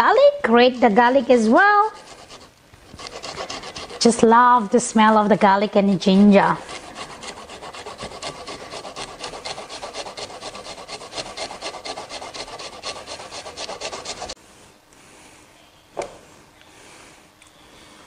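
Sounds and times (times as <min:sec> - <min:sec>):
garlic grated on rasp grater: 0:00.5 - 0:04.4, 0:05.1 - 0:14.4.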